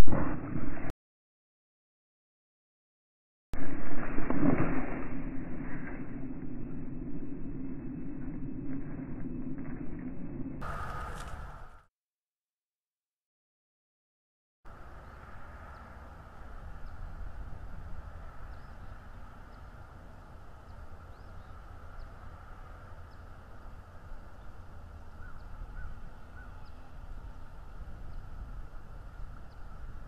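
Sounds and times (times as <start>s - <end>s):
wind rumble: 3.6s - 11.9s, 14.7s - 30.0s.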